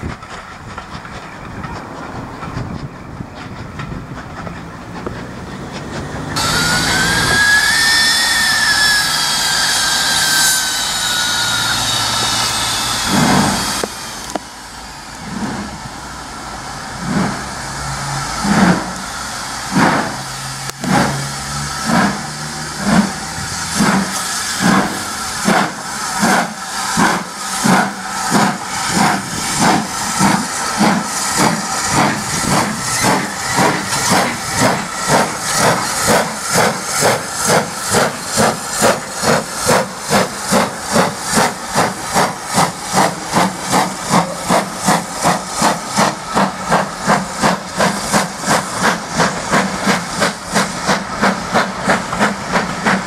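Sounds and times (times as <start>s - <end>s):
hissing steam: 0.0s - 53.0s
steam locomotive exhaust beats: 0.0s - 53.0s
steam whistle: 6.4s - 14.4s.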